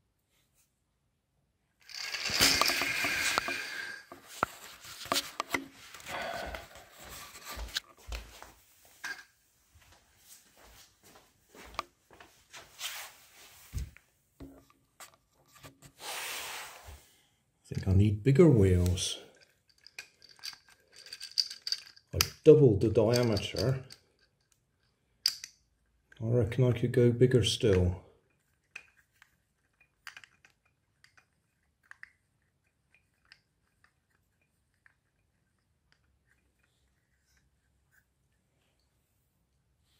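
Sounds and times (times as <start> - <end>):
handling clicks and knocks: 1.8 - 6.1, 18.8 - 24.6, 27.7 - 36.7.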